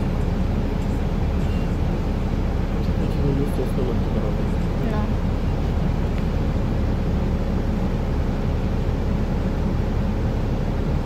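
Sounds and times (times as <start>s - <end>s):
bus engine rumble: 0.0s - 11.0s.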